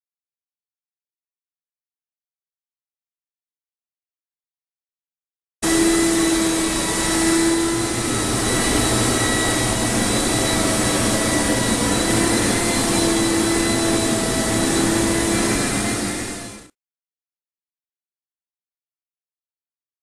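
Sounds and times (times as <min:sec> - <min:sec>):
dehumidifier blowing rush: 0:05.6 - 0:16.7
fan whine: 0:05.6 - 0:16.7
low hum: 0:05.6 - 0:16.7.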